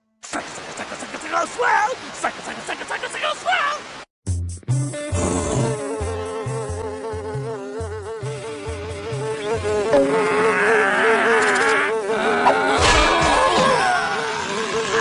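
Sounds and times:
cartoon fly buzzing: 0:05.0 - 0:15.0.

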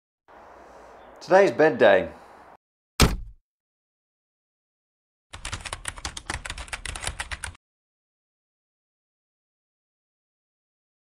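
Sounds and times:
keyboard typing clicks: 0:05.4 - 0:07.6.

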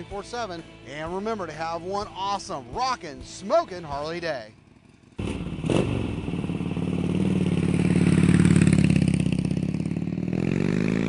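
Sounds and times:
motorcycle engine revving: 0:04.5 - 0:11.0.

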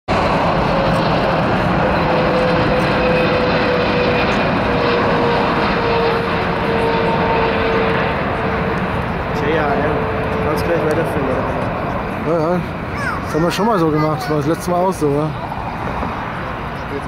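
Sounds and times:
jet airliner passing low: 0:00.1 - 0:17.0.

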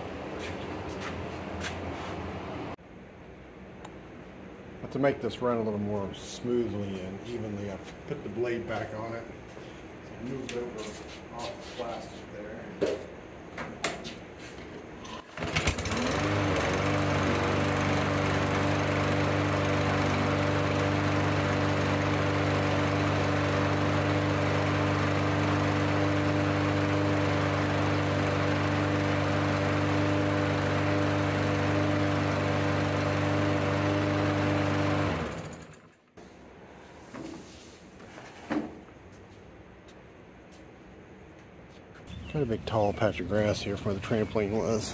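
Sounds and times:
lawn mower engine starting and running: 0:15.2 - 0:36.1.

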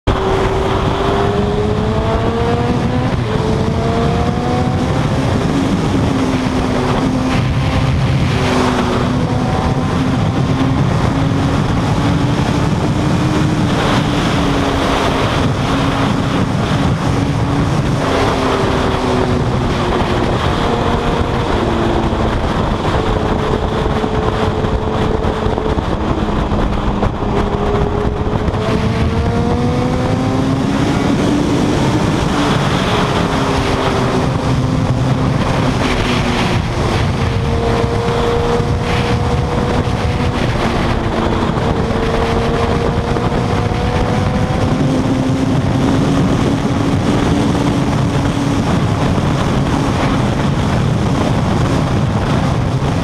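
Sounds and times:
motorcycle engine revving: 0:00.0 - 0:53.0
wind rushing over microphone: 0:00.0 - 0:53.0.

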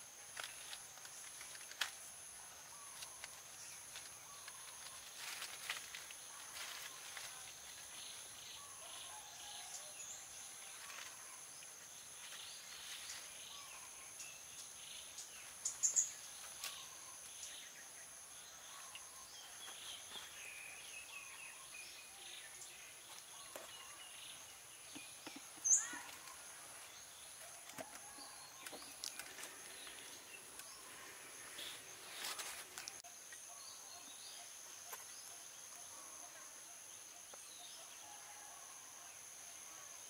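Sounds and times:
insects trilling: 0:00.0 - 0:40.0
bird chirps: 0:12.2 - 0:36.1.

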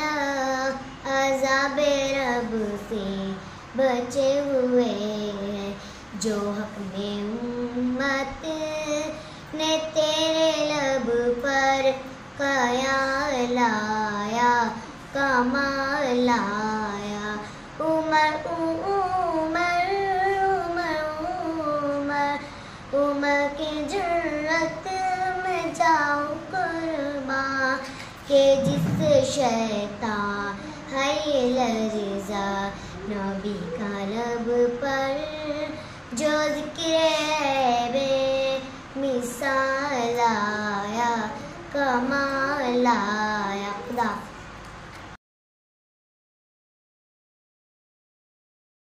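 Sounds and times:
girl singing: 0:00.0 - 0:44.4.

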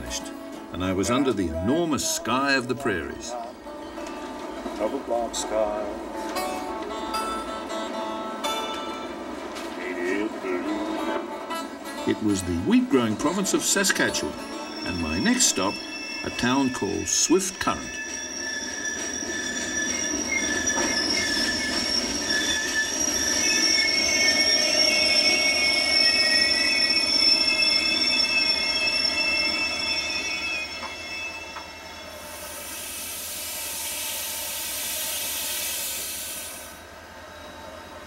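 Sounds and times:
train brakes squealing: 0:12.1 - 0:38.0
steam venting hiss: 0:32.2 - 0:36.8.

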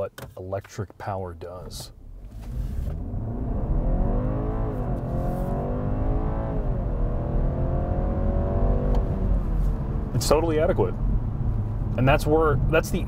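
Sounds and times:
car accelerating hard: 0:02.2 - 0:13.0.

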